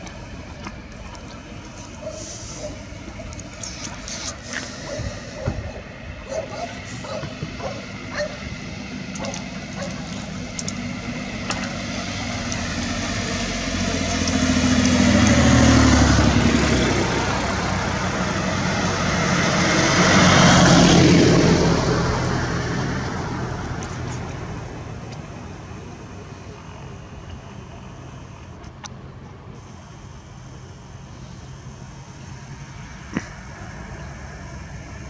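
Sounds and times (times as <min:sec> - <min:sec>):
vehicles passing by: 0:00.0 - 0:35.0.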